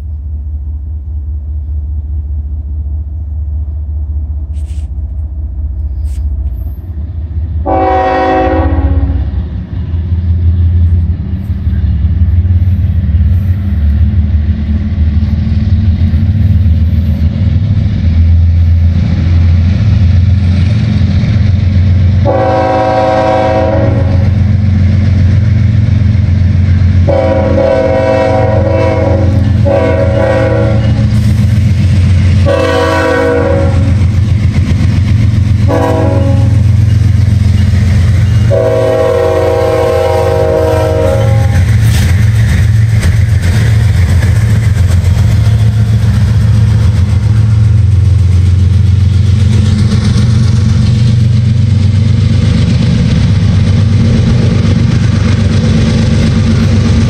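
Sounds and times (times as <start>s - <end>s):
diesel locomotive rumble: 0.0s - 57.0s
locomotive horn blasts: 7.6s - 9.4s, 22.2s - 24.4s, 27.1s - 31.2s, 32.4s - 34.0s, 35.7s - 36.7s, 38.4s - 41.7s.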